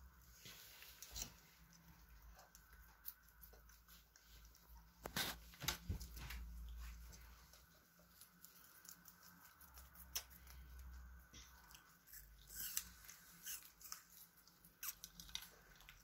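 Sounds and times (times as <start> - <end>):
guinea pigs chewing food: 0.0 - 16.0.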